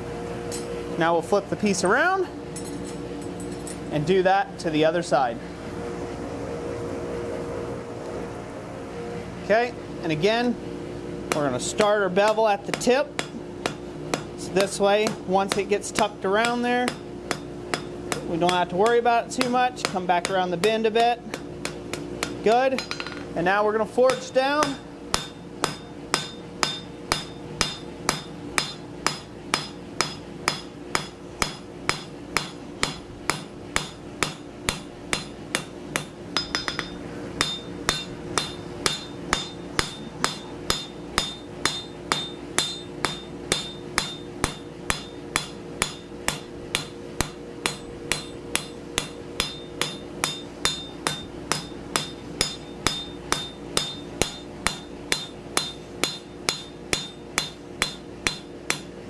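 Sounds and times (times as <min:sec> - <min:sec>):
hammer striking steel on anvil: 0:11.3 - 0:23.3, 0:24.1 - 0:59.0
anvil ringing: 0:24.7 - 0:58.8.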